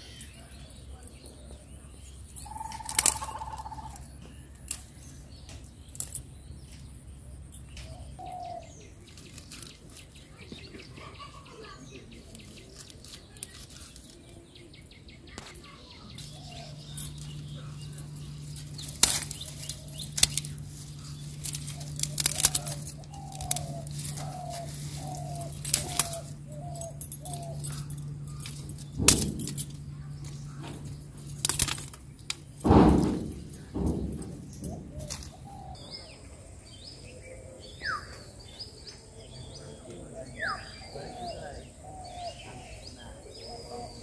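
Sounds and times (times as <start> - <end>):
steady low hum: 0.0 - 44.0
bird calling falling notes: 2.4 - 6.8, 15.4 - 36.4
branches snapping: 2.5 - 6.9, 9.1 - 10.6, 12.2 - 14.4, 16.2 - 35.8
rustling: 12.2 - 14.5, 16.2 - 35.6.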